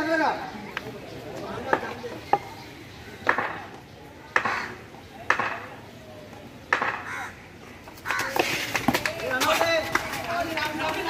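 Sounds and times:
players shouting and chatting: 0.0 - 11.0
cricket bat knocking on paving: 5.2 - 5.7, 6.7 - 7.1.

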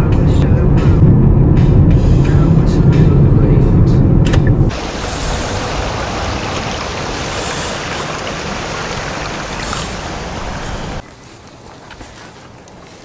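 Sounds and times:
stream running over stones: 4.7 - 11.0.

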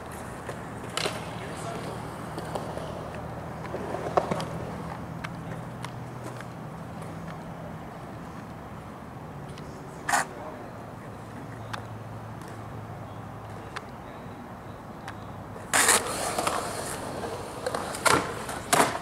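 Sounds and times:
skateboard clack: 0.0 - 7.5, 15.0 - 19.0
skateboard wheels rolling on concrete: 0.0 - 19.0.

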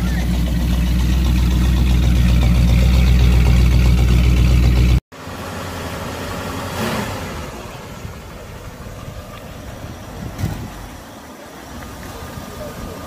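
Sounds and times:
low rumble: 0.0 - 5.0
car engine idling: 0.0 - 13.0.

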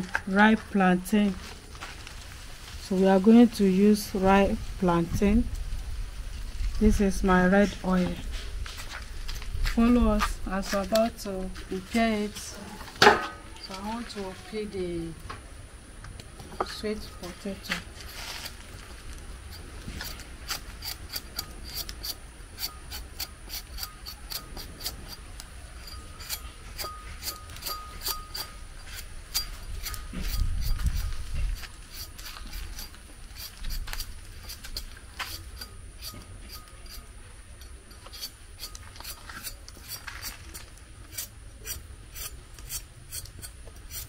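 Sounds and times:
knife scraping sweet potato: 19.5 - 37.0, 37.6 - 44.0.

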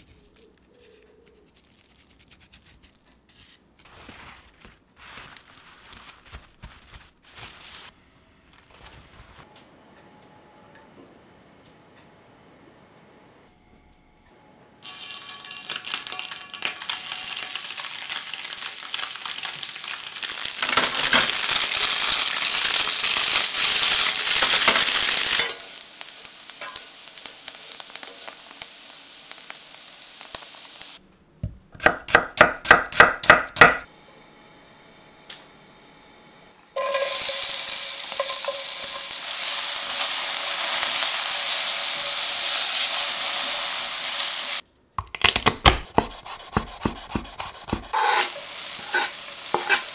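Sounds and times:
onion sizzling in pan: 14.8 - 31.0, 36.8 - 44.6, 45.9 - 49.9
tofu sizzling in oil: 14.8 - 31.0, 36.8 - 44.6, 47.9 - 49.9
spatula stirring in pan: 36.8 - 40.1, 45.9 - 49.9.

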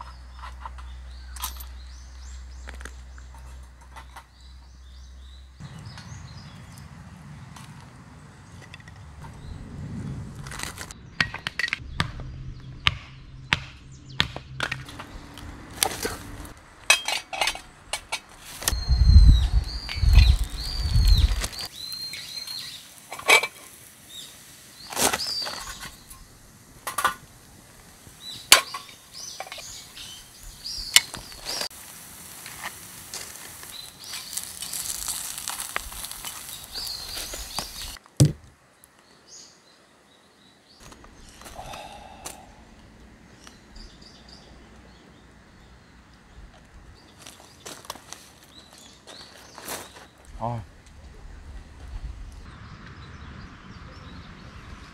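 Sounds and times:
kindling sticks cracking: 19.8 - 23.9, 30.9 - 39.0.

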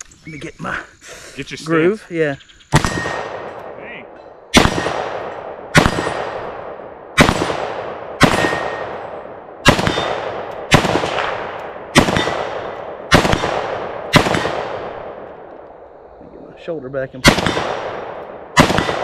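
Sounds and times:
rifle shots with echo: 2.7 - 15.7, 17.2 - 19.0
steel target ringing: 8.3 - 9.1.

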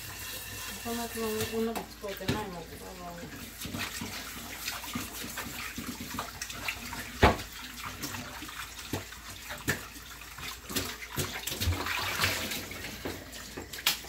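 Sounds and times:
tap running into sink: 0.3 - 2.6, 5.0 - 8.2, 8.8 - 10.0
pots and utensils clattering: 3.3 - 14.0.

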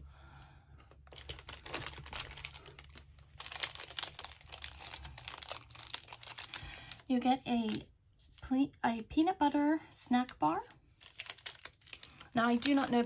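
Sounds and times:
plastic wrappers crinkling: 0.9 - 8.5, 10.2 - 13.0.

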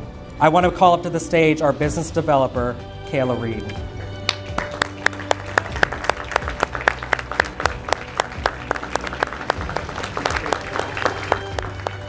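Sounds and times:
audience applauding: 4.2 - 12.0
sharp hand claps: 4.2 - 12.0.

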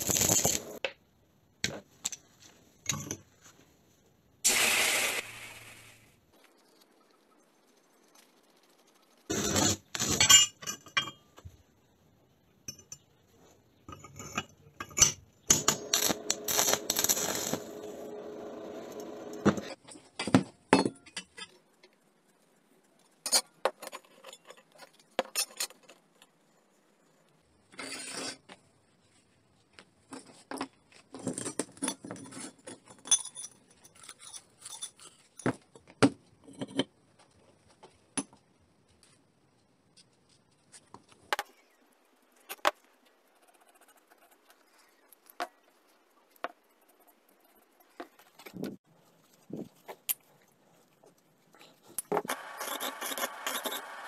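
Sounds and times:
steel parts clinking and scraping: 0.0 - 0.8, 9.3 - 11.5, 13.9 - 18.0, 31.2 - 35.9, 51.7 - 54.0.

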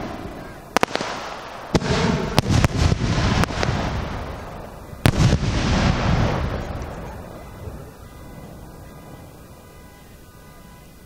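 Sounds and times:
firework bangs with echo: 0.0 - 7.9.

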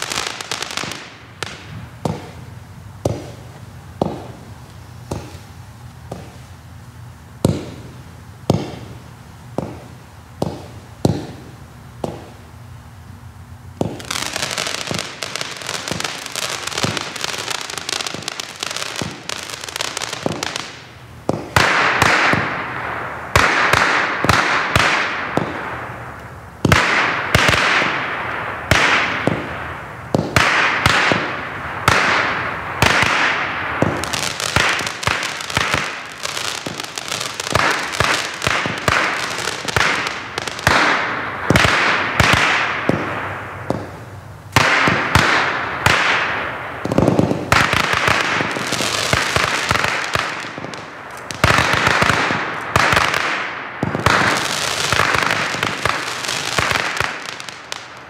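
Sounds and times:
fireworks bangs: 0.0 - 58.0
fireworks crackling: 0.0 - 58.0.

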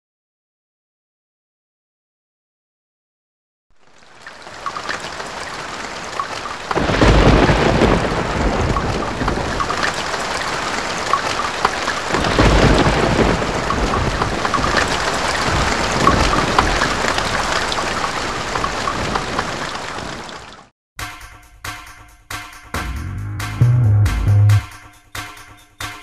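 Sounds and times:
steady rain: 3.7 - 20.7
thunder rumbling: 4.5 - 20.4.

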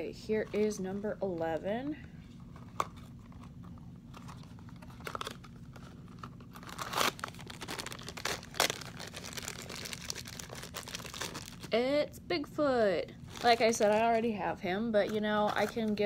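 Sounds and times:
foil bag crinkling and tearing: 4.2 - 11.7, 13.2 - 14.2.

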